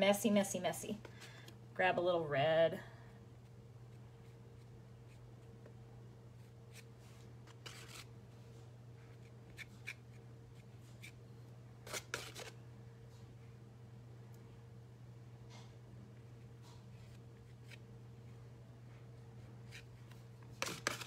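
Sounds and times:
palette knife scraping paint: 7.5s - 8.1s, 11.8s - 12.6s, 20.6s - 21.0s.

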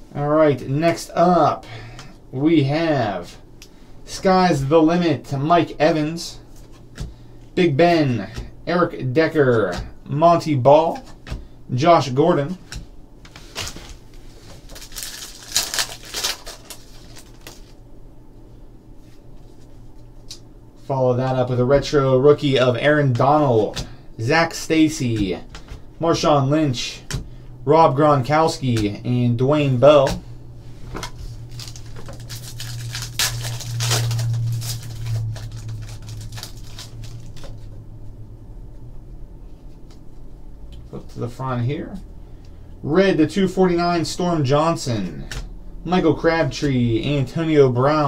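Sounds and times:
faint steady hum: 0.0s - 48.0s
cards scraping and rustling: 13.3s - 17.8s, 30.8s - 37.7s
foil pack crinkling and tearing: 13.4s - 17.8s, 31.0s - 37.6s.

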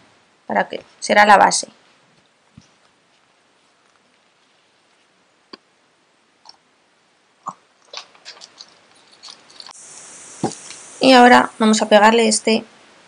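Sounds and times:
rustling: 1.8s - 5.6s, 7.7s - 11.0s.

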